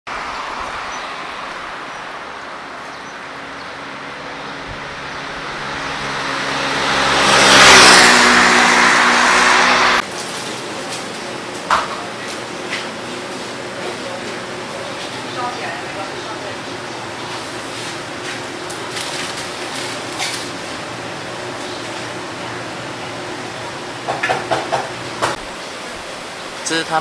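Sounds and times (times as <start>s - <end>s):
vehicle passing close: 0.1s - 11.4s
street traffic noise: 0.1s - 27.0s.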